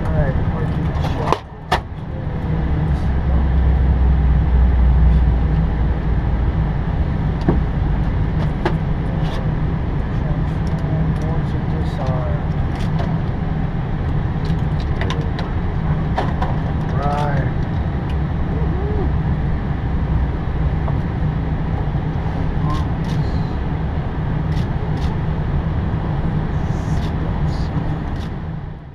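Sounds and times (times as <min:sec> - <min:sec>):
aircraft engine drone: 0:00.0 - 0:28.9
faint voices: 0:18.5 - 0:19.2.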